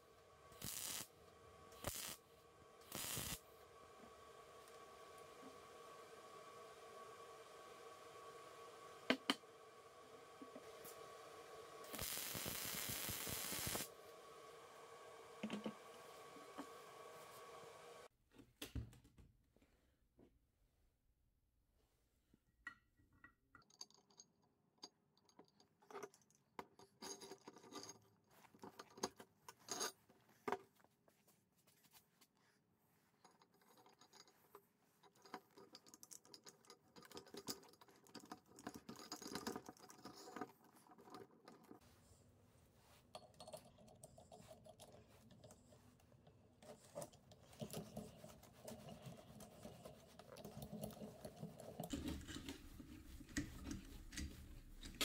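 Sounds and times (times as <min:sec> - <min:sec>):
metal rubbing and rattling: 0:46.6 - 0:55.0.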